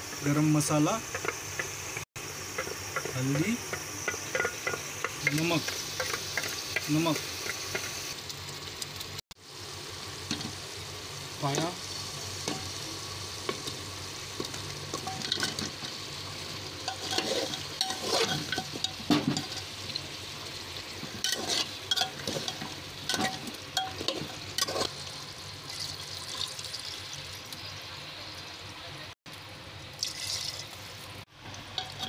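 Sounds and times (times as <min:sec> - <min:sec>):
low hiss of cooking: 0:00.0 - 0:32.0
ladle scraping a metal pot: 0:16.8 - 0:19.7, 0:21.1 - 0:25.0, 0:31.8 - 0:32.0
water poured into a pot: 0:25.0 - 0:27.6, 0:29.9 - 0:32.0.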